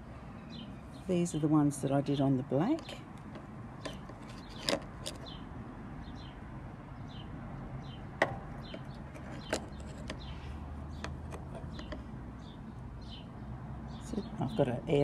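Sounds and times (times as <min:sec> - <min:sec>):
resin coasters clicking: 0:02.8 - 0:05.4, 0:08.2 - 0:10.3, 0:10.9 - 0:12.1.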